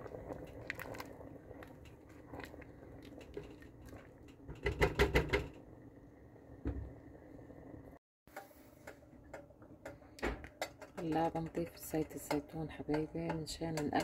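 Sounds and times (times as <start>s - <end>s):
light bubbling: 0.0s - 4.7s
spatula stirring a pot: 8.3s - 14.0s.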